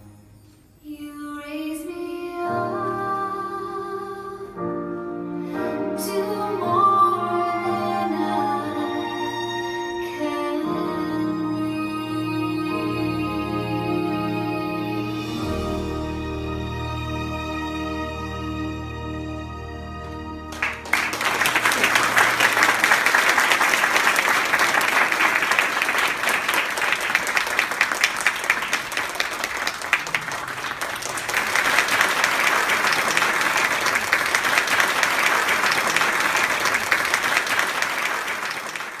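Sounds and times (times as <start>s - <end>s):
music: 0.0s - 22.3s
audience applauding: 20.5s - 39.0s.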